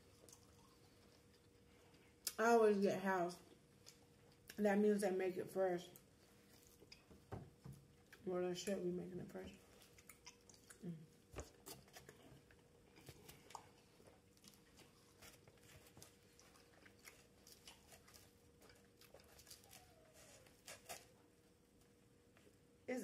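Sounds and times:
chewing crisp salad: 0.0 - 2.4, 6.0 - 7.3, 9.6 - 21.2.

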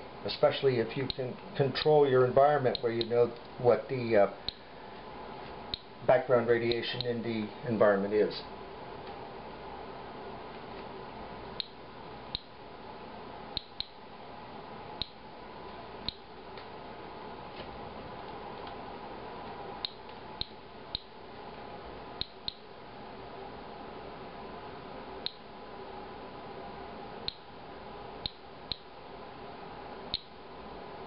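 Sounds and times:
steady low hum: 0.0 - 31.0
geiger counter clicking: 11.6 - 12.5, 13.6 - 14.0, 15.0 - 15.2, 16.0 - 16.3, 19.8 - 21.1, 22.2 - 22.7, 25.2 - 25.5, 27.2 - 27.5, 28.2 - 28.9, 30.1 - 30.4.

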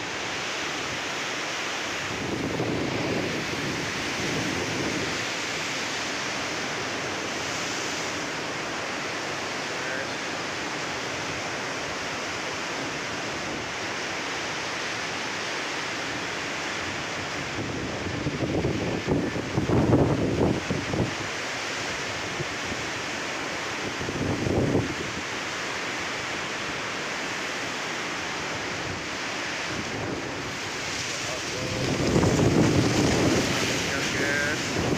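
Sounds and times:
waves breaking: 0.0 - 34.9
wind buffeting microphone: 2.0 - 8.4, 17.3 - 21.3, 23.8 - 25.2, 28.4 - 34.9
wind rushing: 28.6 - 34.9.

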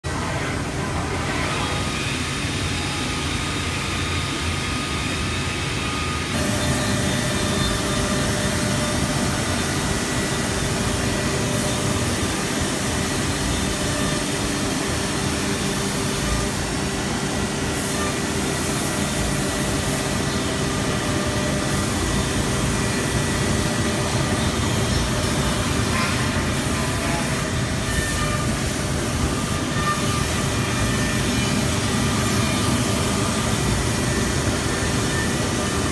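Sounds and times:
machine mechanical drone: 0.1 - 35.9.

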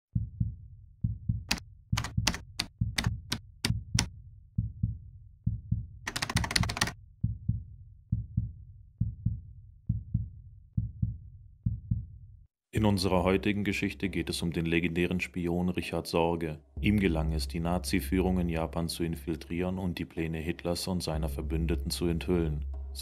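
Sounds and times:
heartbeat-like double thump: 0.2 - 6.0, 7.2 - 12.2
typewriter keys striking: 6.1 - 6.9.

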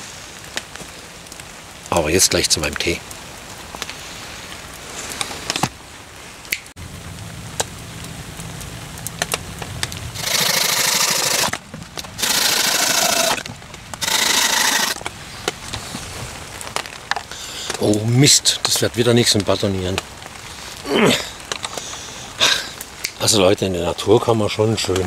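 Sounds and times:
blade rasping through wood: 10.2 - 11.6, 12.2 - 13.4, 14.0 - 15.0.

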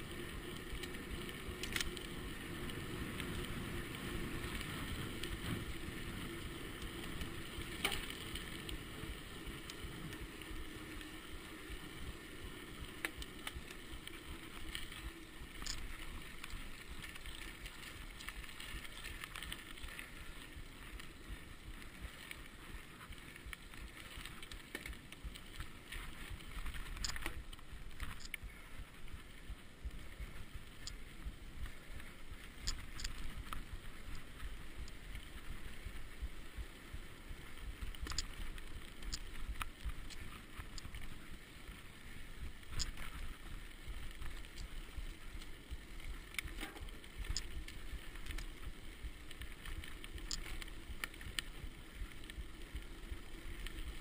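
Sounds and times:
bike tyres rolling: 0.0 - 54.0
bike clicks and knocks: 46.3 - 47.6.

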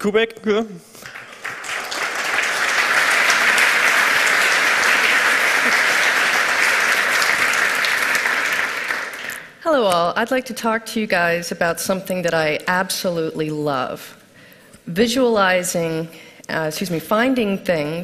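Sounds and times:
audience applauding: 1.0 - 9.6.

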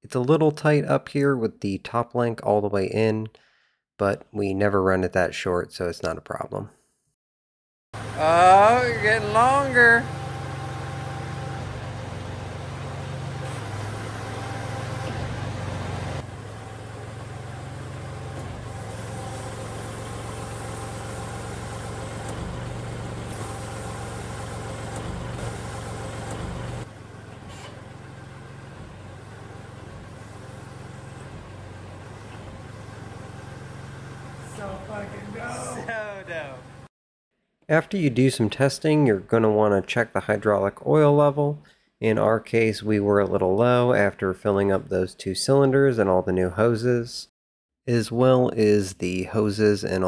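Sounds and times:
tractor diesel engine idling: 8.0 - 36.9.

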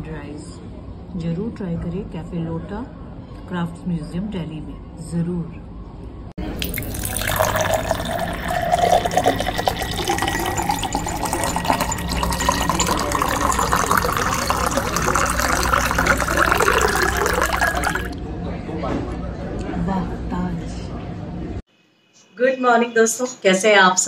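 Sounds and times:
liquid pouring into vessel: 6.4 - 18.2.

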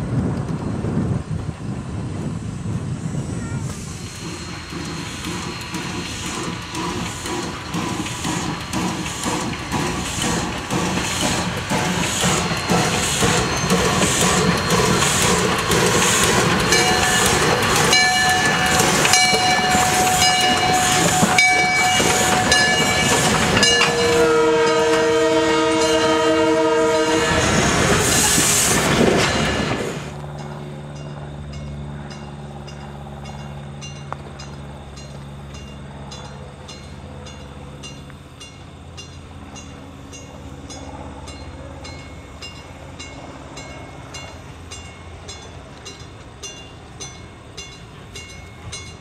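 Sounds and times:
steam locomotive chuffing: 1.4 - 49.0
locomotive bell ringing: 4.3 - 27.5, 29.1 - 49.0
steam whistle blast: 16.1 - 28.4.

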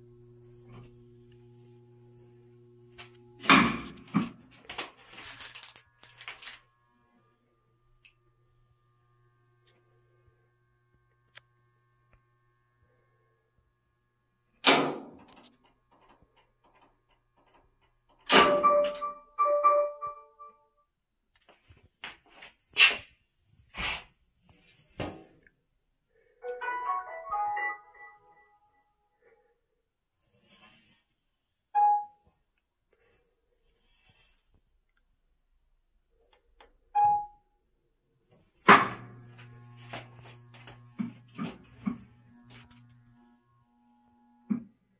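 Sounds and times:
electrical hum with hiss: 0.0 - 14.6, 38.3 - 44.5
washer control panel beep: 18.4 - 20.5, 31.8 - 32.2, 36.9 - 37.5.

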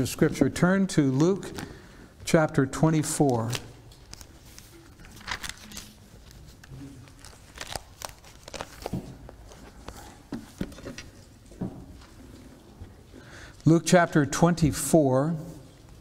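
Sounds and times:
paper pages turning: 3.1 - 11.4.

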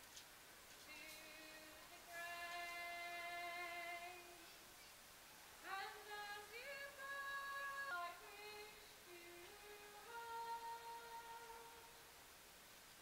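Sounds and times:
person singing long notes: 0.9 - 4.6, 5.6 - 12.1.

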